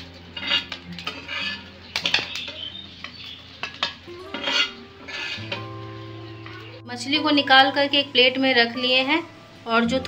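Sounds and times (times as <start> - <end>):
spatula clinking on pan and plate: 0.0 - 5.7
spatula scraping pan: 0.0 - 6.8.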